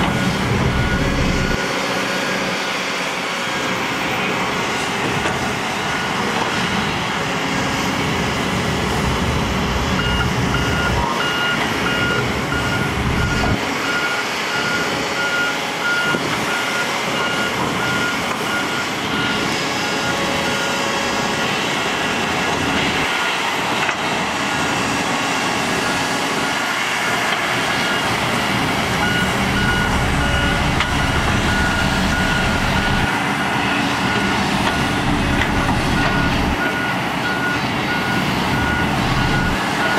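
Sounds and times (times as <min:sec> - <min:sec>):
backup alarm beeping: 0:00.0 - 0:01.8, 0:10.0 - 0:19.4, 0:29.0 - 0:39.9
heavy machine diesel engines: 0:00.0 - 0:39.9.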